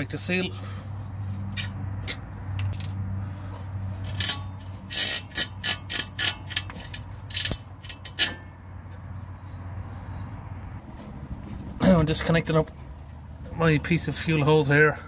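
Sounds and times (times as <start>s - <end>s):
rubber hose scraping and clicking: 1.0s - 9.2s.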